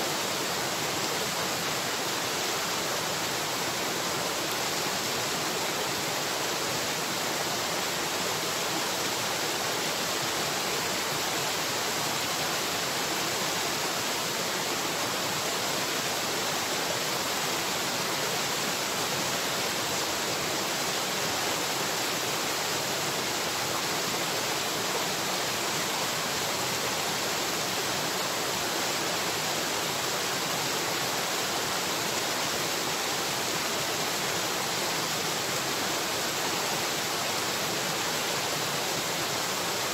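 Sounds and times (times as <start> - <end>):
running water rushing: 0.0 - 39.9.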